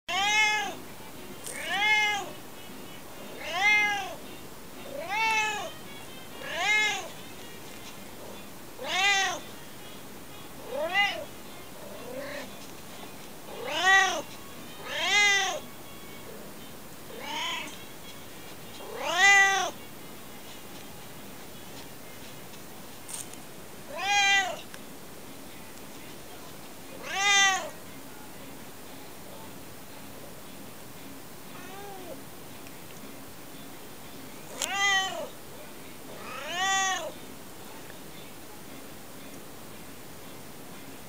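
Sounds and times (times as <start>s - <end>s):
cat meowing: 0.1s - 0.8s, 1.5s - 2.4s, 3.3s - 4.2s, 4.9s - 5.8s, 6.4s - 7.1s, 8.8s - 9.5s, 10.6s - 11.3s, 11.9s - 12.6s, 13.5s - 15.7s, 17.1s - 17.8s, 18.8s - 19.8s, 23.9s - 24.7s, 27.0s - 27.8s, 31.6s - 32.2s, 34.6s - 35.3s, 36.2s - 37.2s.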